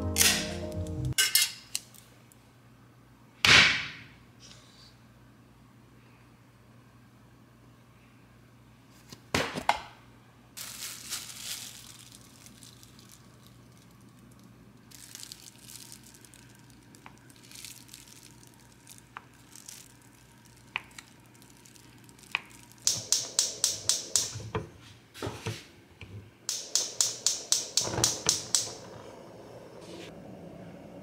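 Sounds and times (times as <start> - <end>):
gas stove igniter clicking: 22.9 - 24.5, 26.5 - 29.0.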